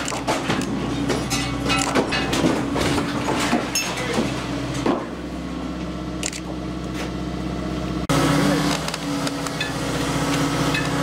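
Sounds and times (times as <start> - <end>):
wooden timbers cracking and creaking: 0.0 - 5.1
heavy machine engine running: 0.0 - 11.0.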